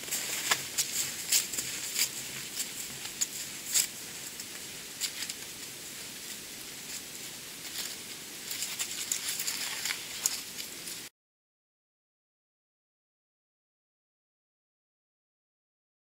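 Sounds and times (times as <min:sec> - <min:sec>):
footsteps crunching in snow: 0:00.0 - 0:11.1
steady hiss: 0:00.0 - 0:11.1.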